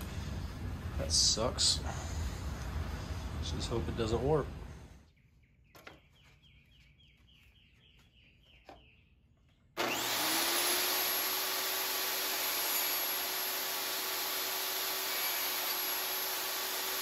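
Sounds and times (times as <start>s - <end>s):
table saw motor running: 9.8s - 17.0s.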